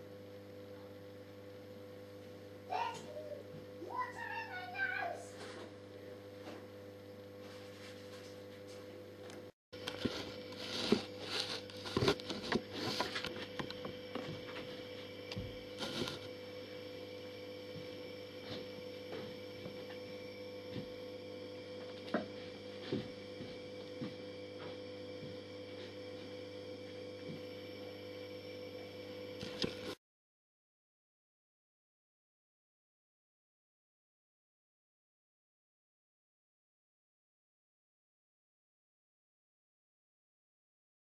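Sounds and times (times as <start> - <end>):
steady electrical hum: 0.0 - 30.0
rustles and clicks: 15.8 - 16.3.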